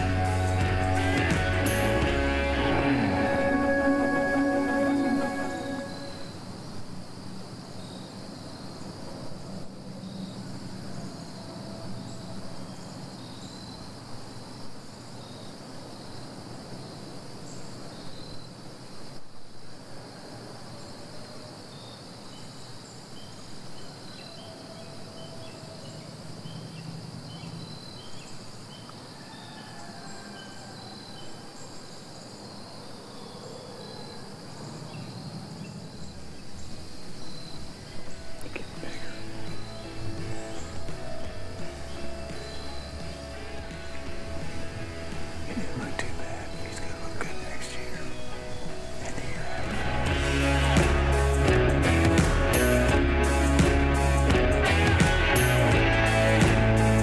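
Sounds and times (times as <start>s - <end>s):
crickets trilling: 0.0s - 51.5s
short high insect chirps: 3.4s - 6.6s.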